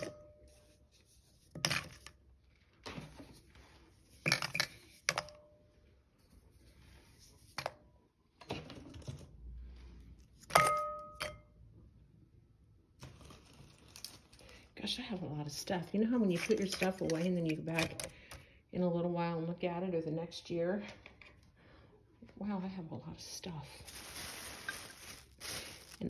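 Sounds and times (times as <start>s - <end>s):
objects clinking against glass: 10.5s - 11.5s
glass ringing tone: 10.6s - 11.5s.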